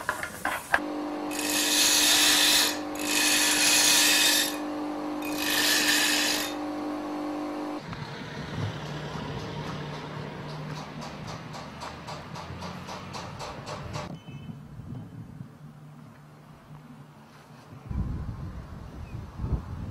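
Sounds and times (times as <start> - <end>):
electric grinder motor hum: 0.8 - 7.9.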